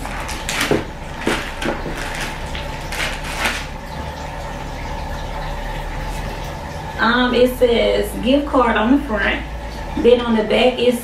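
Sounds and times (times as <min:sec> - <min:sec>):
plastic packaging crinkling: 0:00.0 - 0:04.4
steady low hum: 0:00.0 - 0:11.0.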